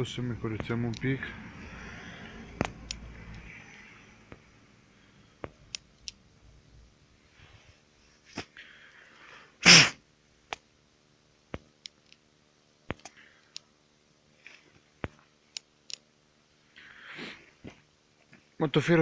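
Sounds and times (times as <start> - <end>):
hissing breath: 1.5 - 2.6, 16.8 - 17.6
person sneezing: 9.6 - 10.0.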